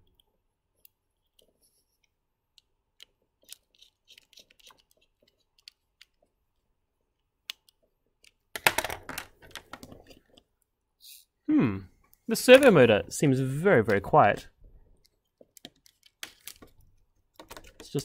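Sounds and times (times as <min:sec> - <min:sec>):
screwdriver turning screw: 0:03.0 - 0:06.2.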